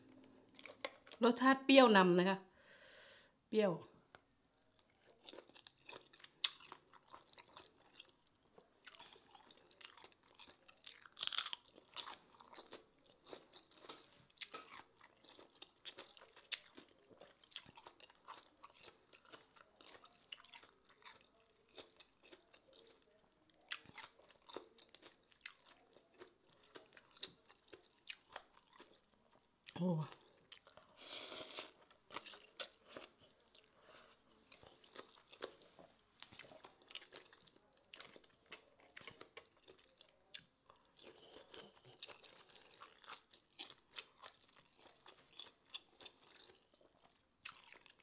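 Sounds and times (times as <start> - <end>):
close-up chewing crunches: 4.8 - 29.3, 31.6 - 48.0.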